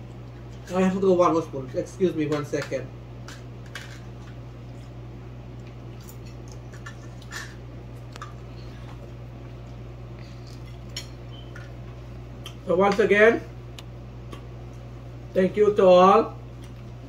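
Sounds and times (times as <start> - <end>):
steady low hum: 0.0 - 17.0
soft chewing: 4.1 - 12.6, 13.7 - 14.9, 16.5 - 17.0.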